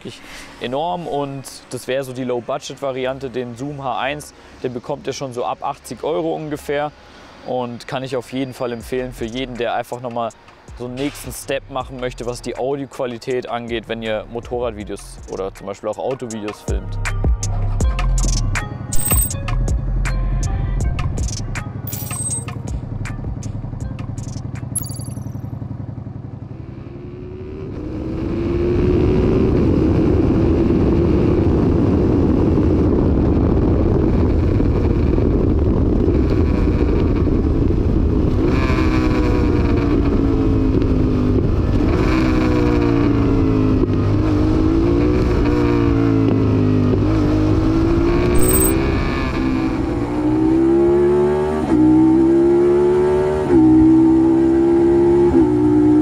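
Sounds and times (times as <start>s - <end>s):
motorcycle engine: 21.8s - 30.9s, 34.7s - 56.0s
wind noise: 28.9s - 40.8s.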